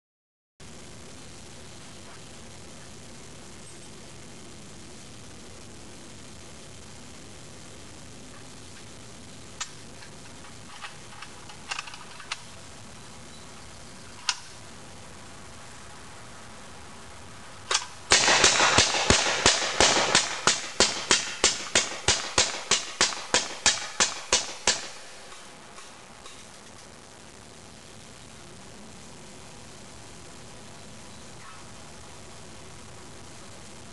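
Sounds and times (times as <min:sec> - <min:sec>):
gatling gun firing rapid shots: 0:18.1 - 0:25.1.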